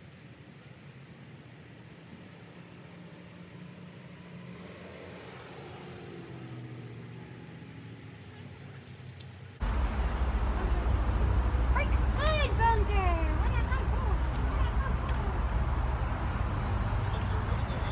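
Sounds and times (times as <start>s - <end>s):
vehicle engine hum passing: 1.6s - 17.9s
loud low rumble: 9.6s - 17.6s.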